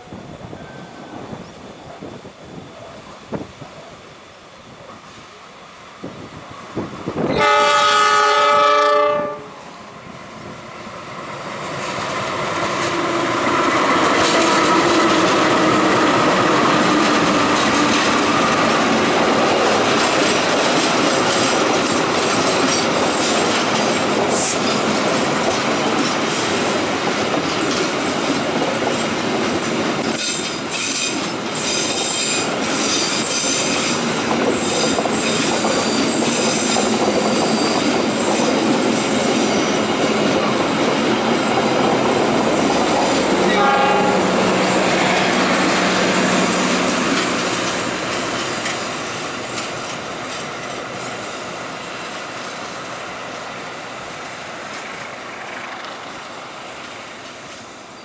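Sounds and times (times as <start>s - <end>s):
train passing rumble: 0.0s - 58.0s
carriages clickety-clack on rails: 6.0s - 58.0s
diesel locomotive horn: 7.2s - 9.7s, 43.2s - 46.9s.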